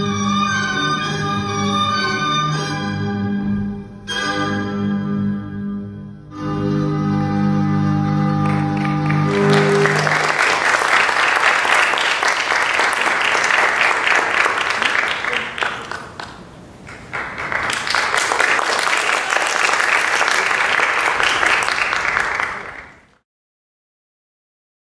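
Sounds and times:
audience applauding: 8.3s - 23.2s.

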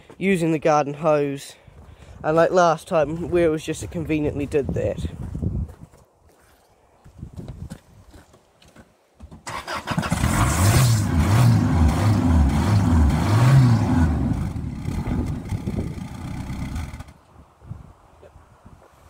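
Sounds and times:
car engine revving: 9.7s - 17.1s.

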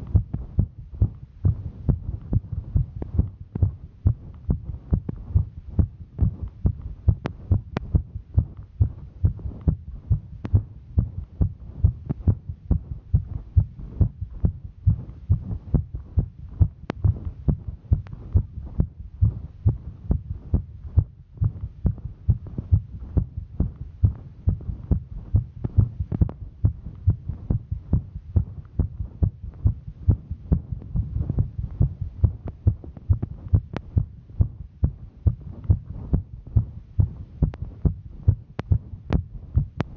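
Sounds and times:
heartbeat thudding: 0.0s - 39.9s
faint clicks: 38.6s - 39.9s.

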